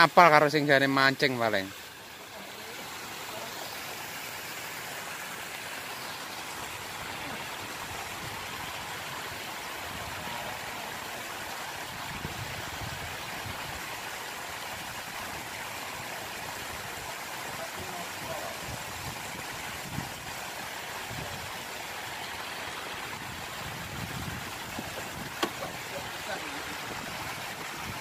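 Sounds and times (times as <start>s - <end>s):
steady outdoor hiss: 0.0s - 28.0s.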